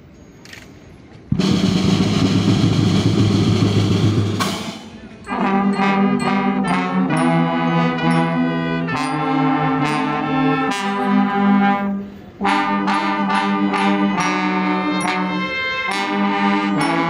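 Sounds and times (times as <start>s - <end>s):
drum roll: 1.3s - 5.1s
brass band playing: 1.3s - 17.0s.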